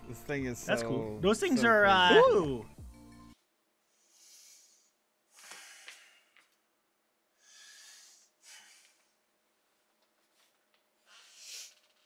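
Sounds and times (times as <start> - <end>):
soft breathing puffs: 3.9 - 6.6, 7.4 - 9.3, 10.2 - 12.0.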